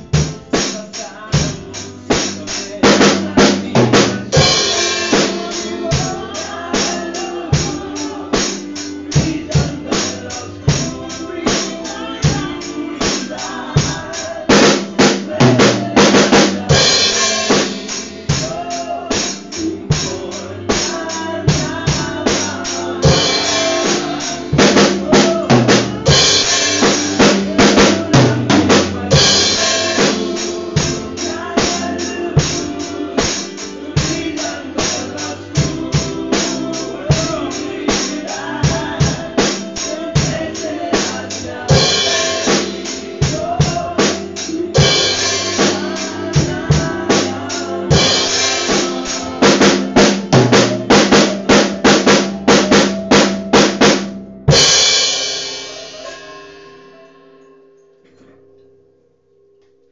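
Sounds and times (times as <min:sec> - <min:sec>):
drum kit playing a steady beat: 0:00.0 - 0:57.2
recorded song backing track: 0:00.0 - 0:59.9
loud cymbal crashes: 0:54.5 - 0:57.5.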